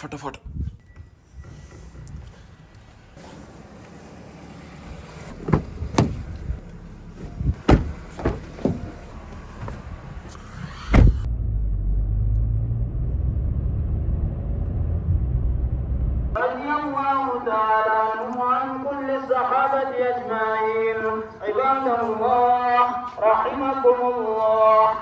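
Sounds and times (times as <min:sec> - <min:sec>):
car engine and road rumble: 0:00.0 - 0:16.5
car door heavy thud: 0:05.3 - 0:06.4, 0:07.6 - 0:08.9, 0:10.9 - 0:11.3
car door clicks and knocks: 0:05.4 - 0:06.3, 0:07.6 - 0:08.9.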